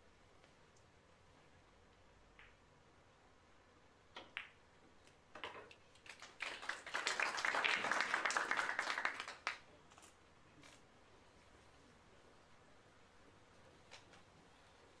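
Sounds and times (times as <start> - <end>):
spectators clapping: 6.0 - 9.6.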